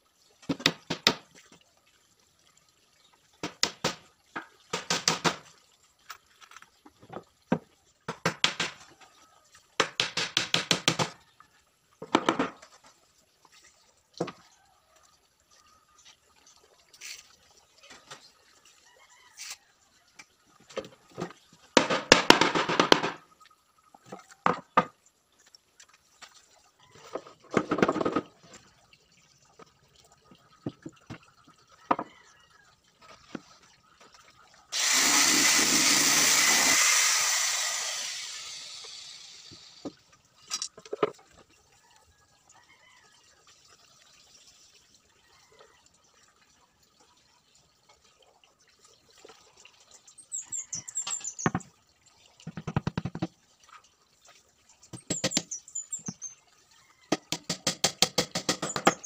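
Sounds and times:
circular saw cutting: 0:34.7 - 0:39.8
wood knocking and scraping: 0:52.5 - 0:53.3.

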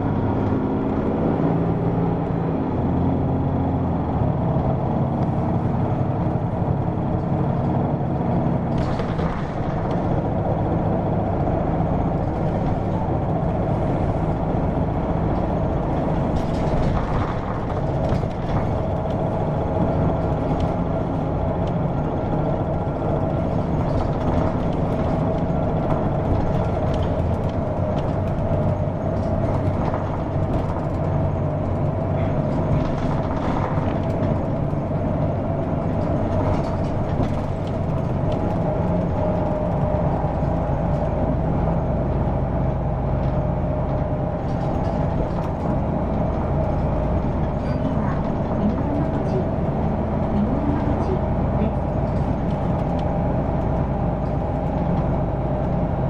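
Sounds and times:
bus diesel engine droning: 0:00.0 - 0:56.0.

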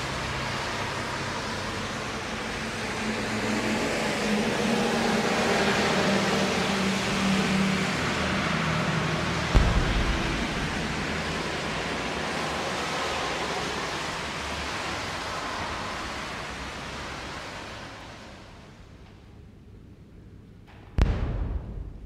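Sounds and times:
steady rushing noise: 0:07.0 - 0:18.4.

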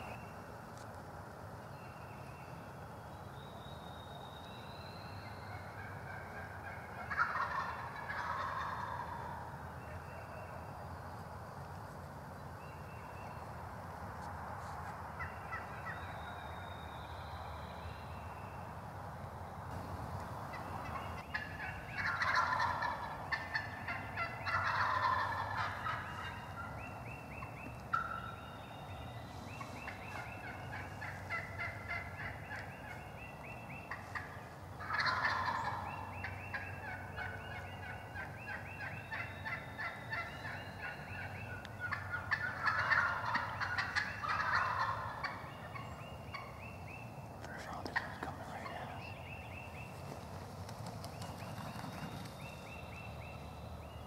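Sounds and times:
turkeys gobbling: 0:05.4 - 0:09.5, 0:15.2 - 0:16.1, 0:19.7 - 0:28.5, 0:29.3 - 0:46.7, 0:47.7 - 0:49.2, 0:49.9 - 0:53.4
turkey yelps: 0:05.6 - 0:09.4, 0:20.8 - 0:26.7, 0:27.9 - 0:28.4, 0:29.8 - 0:32.9, 0:33.9 - 0:46.6.

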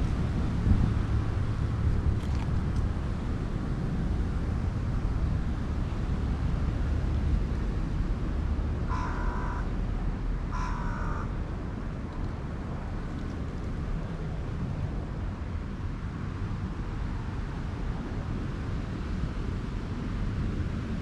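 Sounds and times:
steady low rumble: 0:00.0 - 0:21.0
crow cawing: 0:08.9 - 0:09.7, 0:10.5 - 0:11.4.

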